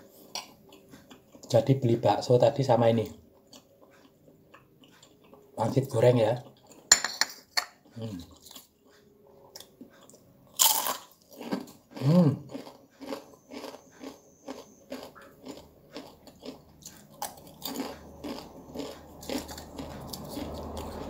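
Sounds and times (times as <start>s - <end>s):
crunching of fried wonton skins: 9.6s - 21.0s.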